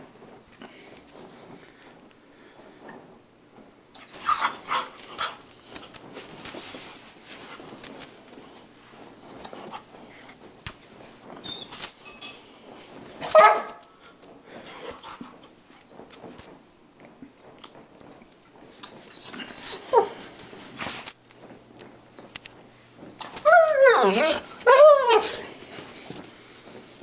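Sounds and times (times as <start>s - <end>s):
dog crying loudly: 4.0s - 5.0s, 19.1s - 20.2s, 23.4s - 25.5s
dog whimpering: 4.0s - 5.0s, 19.1s - 20.2s, 23.3s - 25.5s
dog scratching at carpet: 18.5s - 21.6s, 23.0s - 27.0s.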